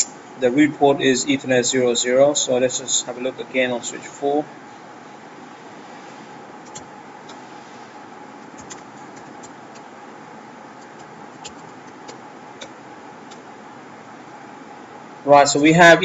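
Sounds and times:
keyboard keystrokes clicking: 0:08.6 - 0:09.8.

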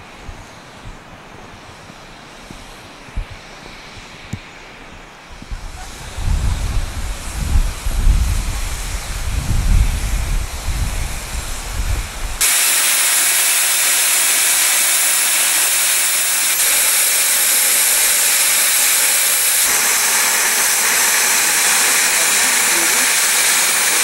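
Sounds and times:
wind rumbling on microphone: 0:00.0 - 0:12.4
steam hissing from locomotive: 0:00.0 - 0:24.0.

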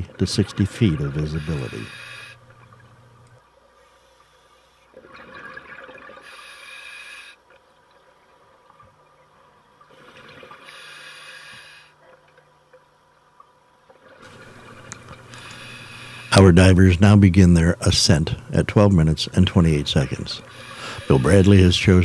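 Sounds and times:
diver breathing through regulator: 0:01.4 - 0:02.5, 0:06.2 - 0:07.4, 0:10.2 - 0:12.0, 0:15.2 - 0:16.4, 0:20.5 - 0:21.6
exhaled bubbles: 0:04.9 - 0:06.5.

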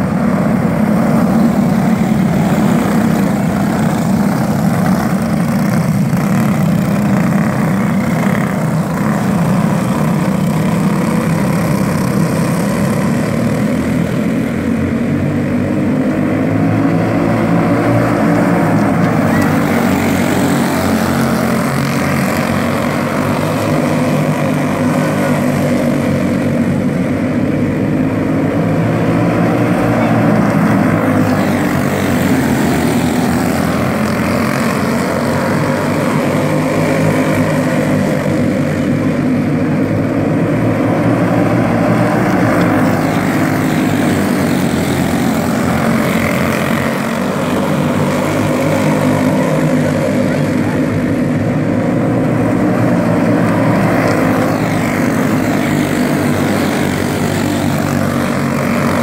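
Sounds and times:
go-kart engines high-revving: 0:00.0 - 0:59.0.

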